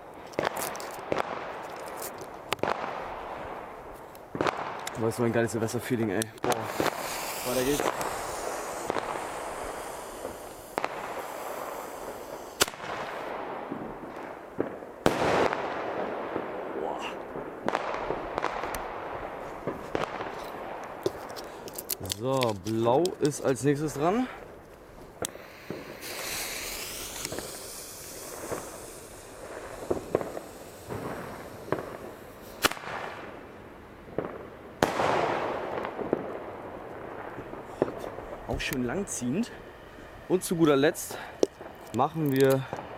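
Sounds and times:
sharp firework cracks: 0.0 - 38.9
firework hissing: 0.0 - 42.9
firework bang with crackle: 0.4 - 3.7, 4.3 - 5.2, 6.4 - 21.6, 25.2 - 33.4, 34.1 - 38.7.

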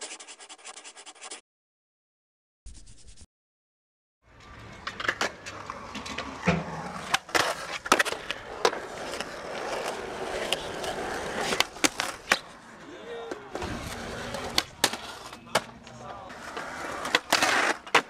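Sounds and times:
skateboard wheels rolling on concrete: 4.2 - 18.0
skateboard clacking: 4.5 - 12.6, 13.2 - 18.0.

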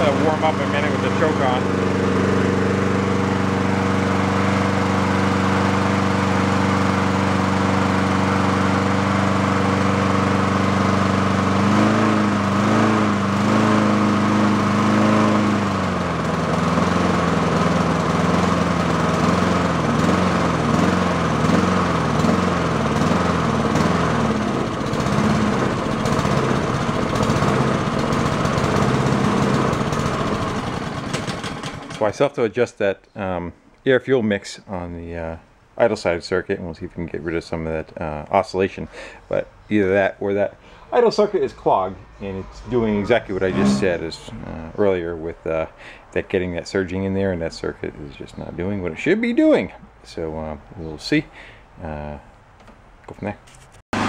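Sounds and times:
lawn mower engine surging: 0.0 - 32.2, 40.5 - 46.0.

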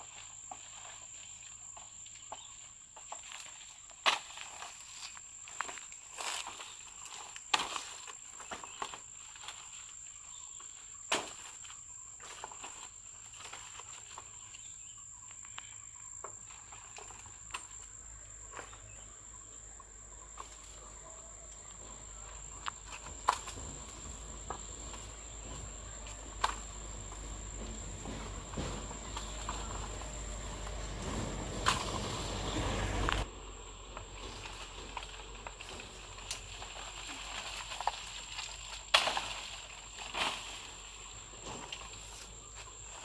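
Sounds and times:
leaves rustling: 0.0 - 43.0
undergrowth snapping: 4.0 - 9.7, 11.1 - 11.7, 21.5 - 33.3, 34.0 - 40.9.

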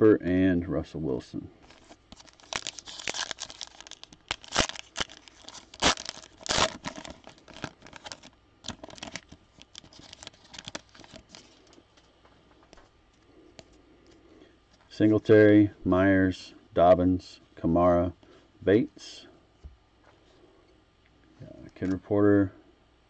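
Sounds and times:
wrapper crinkling: 1.6 - 11.8
wrapper tearing: 1.7 - 11.7.

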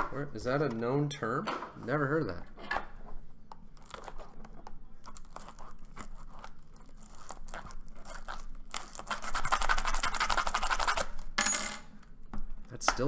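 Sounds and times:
plastic wrap crinkling: 3.7 - 11.3
scratching and tearing plastic: 3.7 - 11.3.

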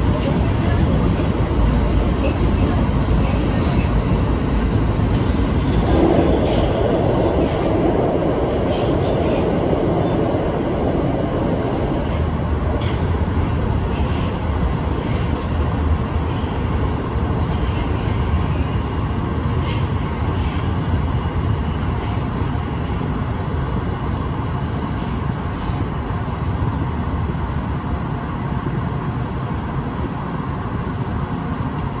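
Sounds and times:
subway train rumbling: 0.0 - 32.0.

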